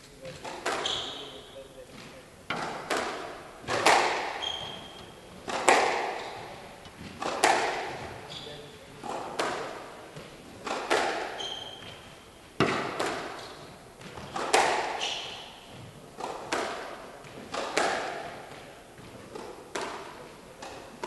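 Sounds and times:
shoes squeaking on wooden floor: 0.0 - 2.9, 3.6 - 9.2, 10.1 - 12.8, 13.4 - 16.4
squash ball knocks: 0.3 - 1.2, 2.5 - 8.2, 9.0 - 21.0.

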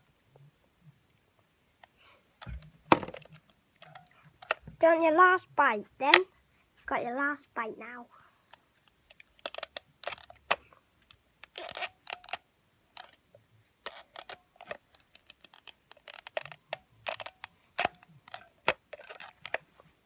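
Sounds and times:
plastic toy teeth clicking: 2.4 - 4.6, 8.8 - 12.4, 13.0 - 13.2, 13.8 - 19.7
apple crunching and scraping: 9.1 - 10.6.

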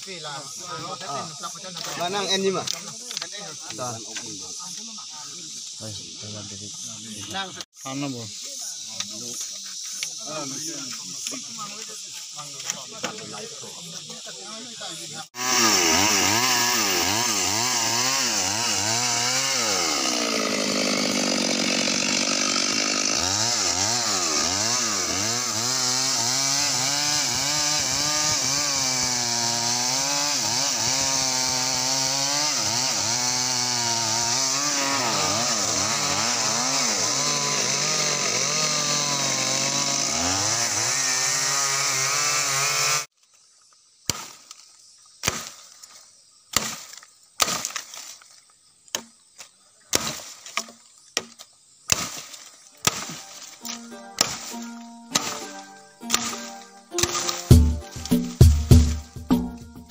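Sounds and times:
chainsaw cutting wood: 15.4 - 43.1, 45.2 - 45.8, 46.5 - 48.1, 49.9 - 59.9.

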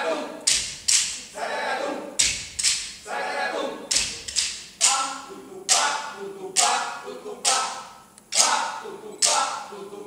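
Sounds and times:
unaccompanied voices singing: 0.0 - 10.0
sharp claps or stamps: 0.5 - 1.2, 2.2 - 3.0.

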